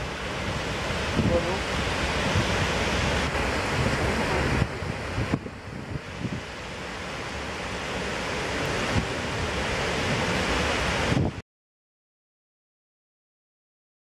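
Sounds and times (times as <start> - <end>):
wind buffeting microphone: 0.0 - 7.1, 8.4 - 11.4
floodwater rushing over spillway: 0.0 - 11.4.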